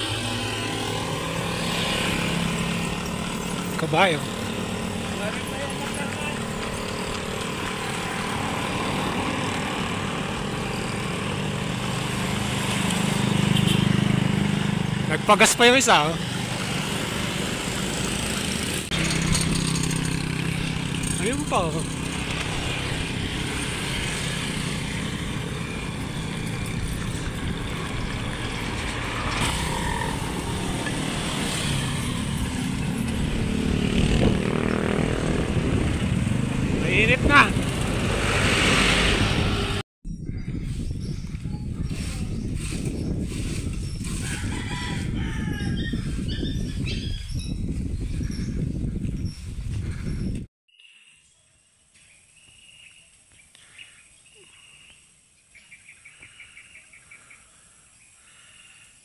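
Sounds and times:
vehicle engine running: 0.0 - 38.2
traffic passing close by: 0.0 - 39.8
road and wind noise: 0.0 - 50.5.

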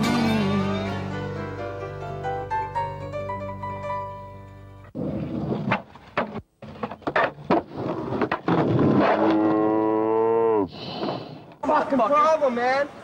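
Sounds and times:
skateboard wheels rolling on concrete: 4.8 - 9.6.

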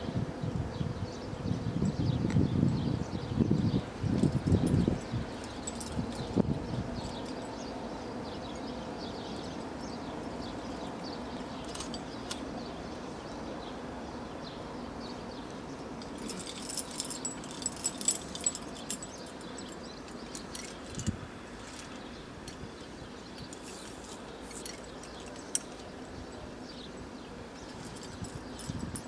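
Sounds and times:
carabiners clinking and jingling: 4.1 - 7.7, 11.4 - 12.5, 15.5 - 26.4, 27.6 - 29.0.

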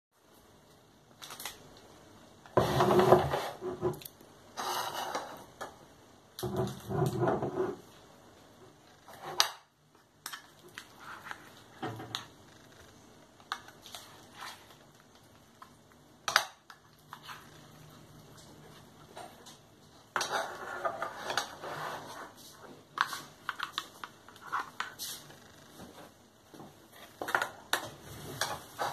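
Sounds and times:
rough scraping of can: 2.6 - 4.0, 20.2 - 22.4.

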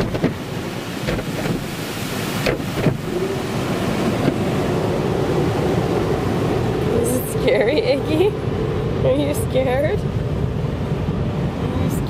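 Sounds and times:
car wash spraying water: 0.0 - 11.9
short knocks: 1.0 - 1.7.

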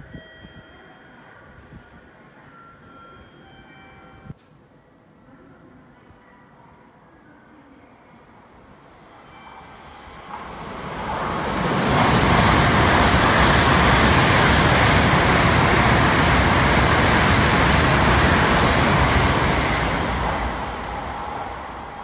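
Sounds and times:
high-speed train passing: 8.4 - 22.0.

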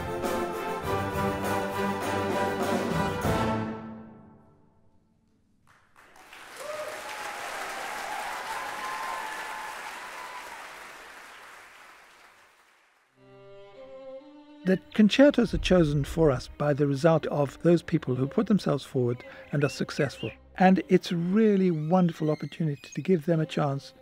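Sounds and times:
audience applause: 5.7 - 13.2
person cheering: 6.6 - 10.8.

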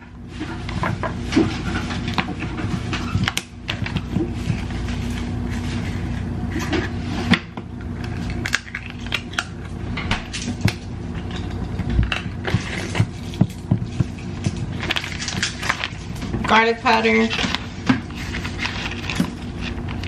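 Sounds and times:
steady low hum: 0.0 - 20.0
plastic bag crinkling: 12.4 - 20.0.

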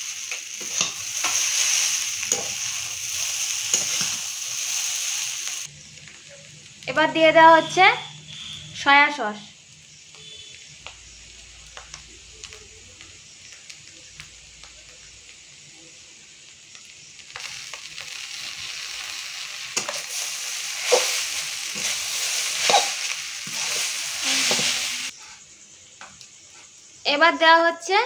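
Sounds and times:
food sizzling in pan: 0.0 - 27.9
spatula scraping and knocking pan: 0.3 - 2.8, 19.8 - 25.4.

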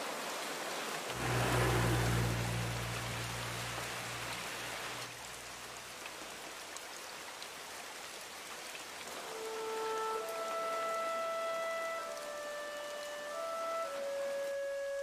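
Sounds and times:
heavy rain falling: 0.0 - 15.0
low hum: 1.2 - 5.1
sustained music notes: 9.2 - 15.0.

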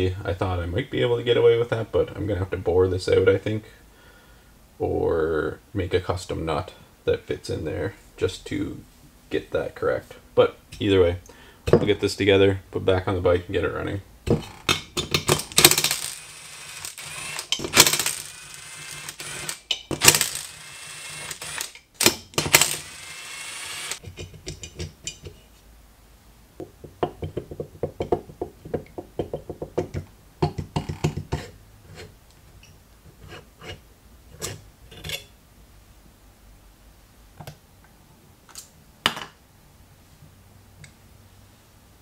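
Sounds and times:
hand tools clicking and tapping: 14.3 - 16.0, 17.4 - 18.1, 19.6 - 20.2, 24.0 - 25.4, 26.6 - 32.8
impact driver spinning: 14.3 - 24.0.

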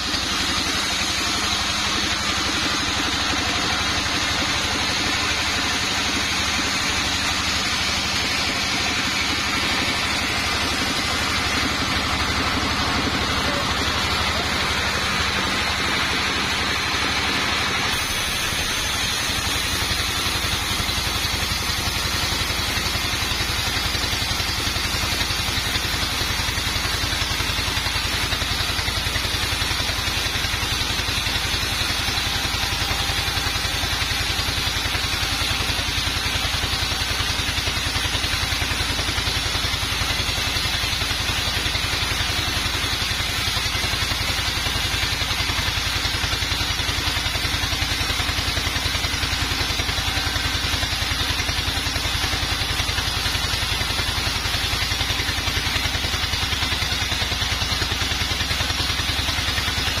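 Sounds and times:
band saw cutting log: 0.0 - 60.0.

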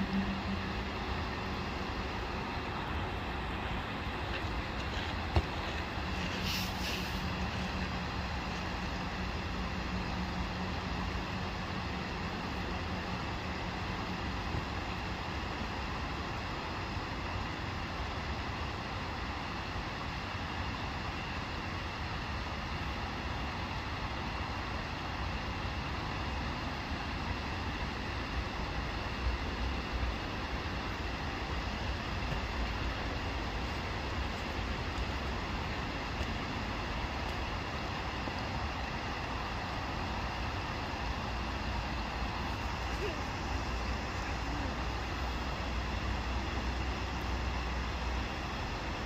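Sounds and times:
distant road traffic: 0.0 - 49.0
even hiss: 6.1 - 7.5.

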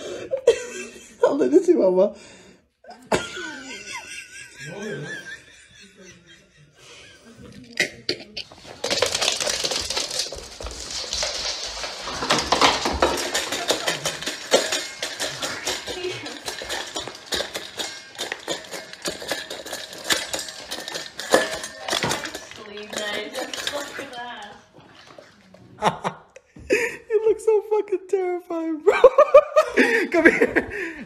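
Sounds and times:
dog eating from metal bowl: 8.5 - 25.8.

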